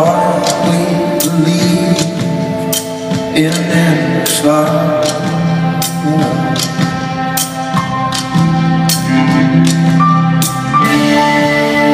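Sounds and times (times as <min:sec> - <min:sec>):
drums: 0:00.0 - 0:11.9
electric guitar with held notes: 0:00.0 - 0:11.9
repeated percussion hits: 0:00.0 - 0:11.9.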